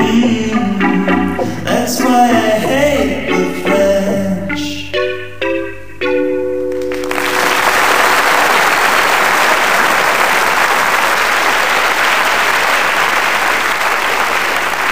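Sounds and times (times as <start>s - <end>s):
music chords ringing: 0.0s - 7.8s
audience applause: 6.7s - 14.9s.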